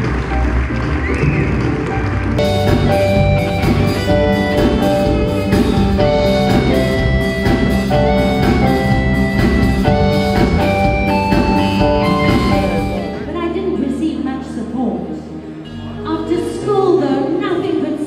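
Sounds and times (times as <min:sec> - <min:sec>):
music with steady drum beat: 0:00.0 - 0:13.2.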